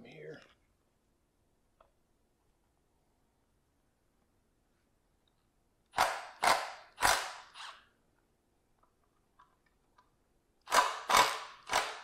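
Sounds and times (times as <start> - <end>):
impact wrench hammering: 5.9 - 7.8, 10.7 - 12.0.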